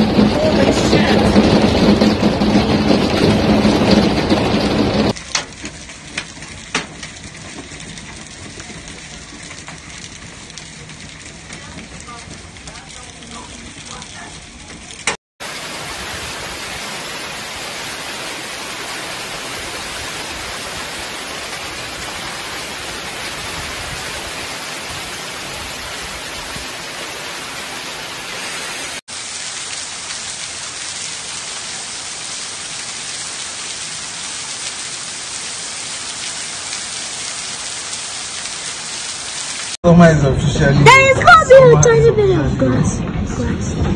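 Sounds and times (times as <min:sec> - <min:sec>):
hail and heavy rain: 0:00.0 - 0:39.8.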